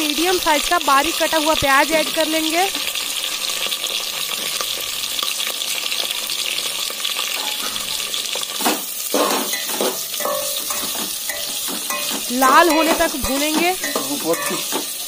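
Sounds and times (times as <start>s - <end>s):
onions sizzling in oil: 0.0s - 15.0s
spatula scraping a pot: 7.4s - 15.0s.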